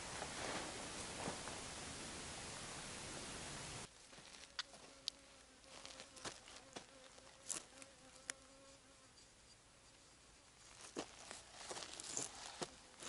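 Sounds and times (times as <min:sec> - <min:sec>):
insect buzzing: 0:03.8 - 0:13.0.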